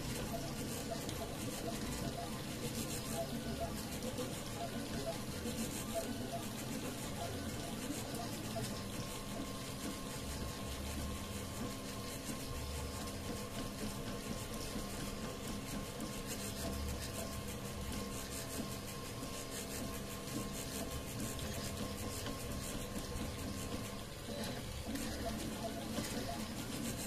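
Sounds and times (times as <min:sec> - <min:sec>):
cooling fans hissing: 0:00.0 - 0:27.0.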